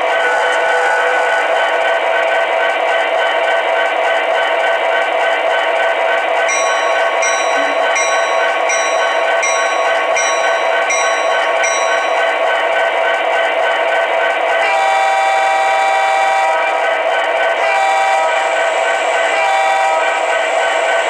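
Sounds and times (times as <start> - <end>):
diesel locomotive idling: 0.0 - 21.0
locomotive bell ringing: 6.4 - 14.1.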